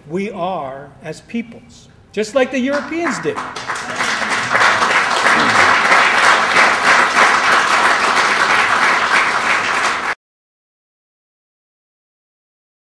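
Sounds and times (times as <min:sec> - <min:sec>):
audience applauding: 0:02.7 - 0:10.2.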